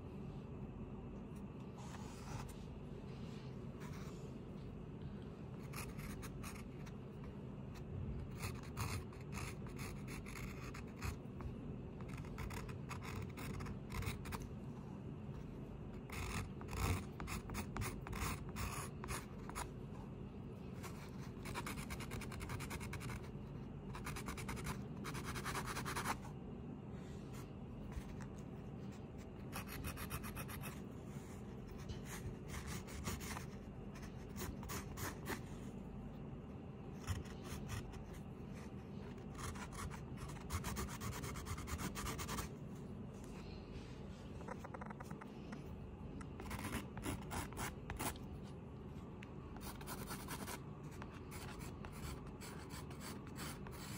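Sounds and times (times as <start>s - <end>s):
steady low hum: 0.0s - 53.9s
art tool scratching on paper: 8.3s - 11.2s, 12.0s - 14.5s, 16.0s - 19.7s, 20.8s - 23.3s, 28.9s - 35.5s, 39.1s - 42.5s, 46.4s - 48.2s.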